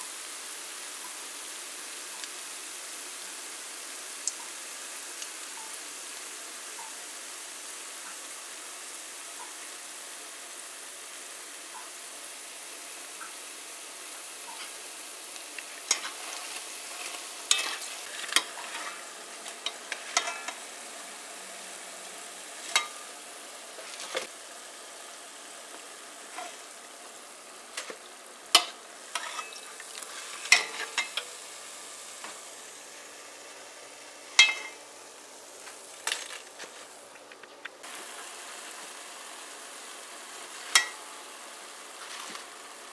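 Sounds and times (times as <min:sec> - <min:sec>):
oil sizzling while deep-frying: 0:00.0 - 0:42.9
spoon clinking and scraping pot: 0:15.8 - 0:20.6, 0:22.6 - 0:23.1, 0:28.6 - 0:31.4, 0:34.4 - 0:34.8, 0:40.7 - 0:41.0.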